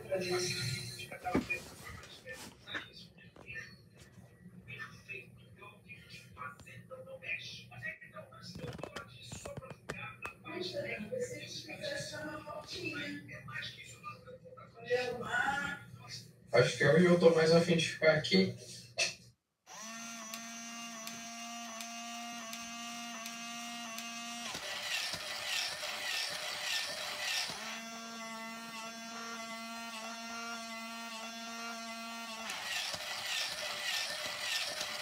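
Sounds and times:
toy robot motors humming and clicking: 0:19.7 - 0:35.0.

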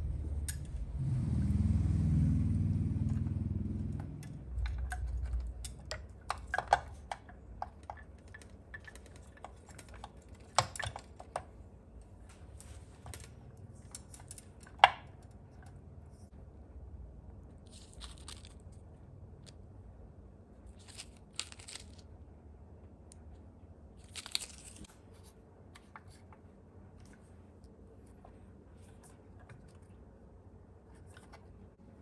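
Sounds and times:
low rumble: 0:00.0 - 0:05.8.

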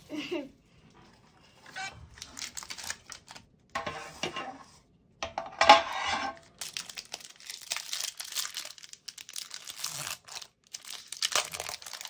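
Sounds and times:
metal tin clinking and scraping: 0:03.8 - 0:06.5.

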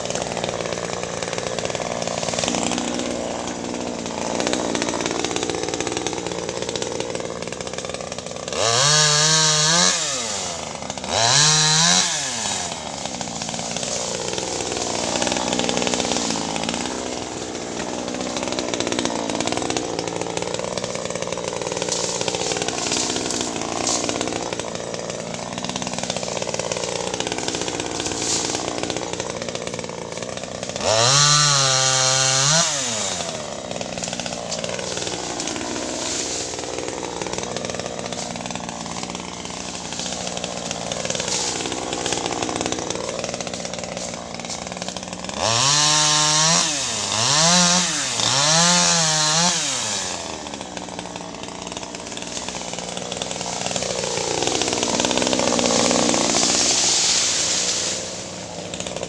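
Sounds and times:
chainsaw idling and revving: 0:00.0 - 0:59.0.

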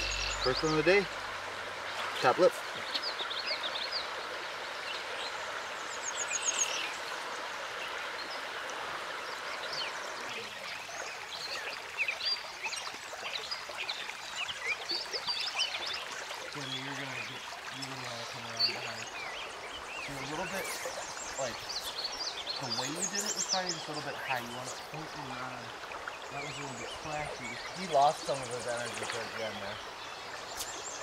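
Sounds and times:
short high chirps: 0:00.0 - 0:00.8
stream rushing over riffle: 0:00.0 - 0:31.0.

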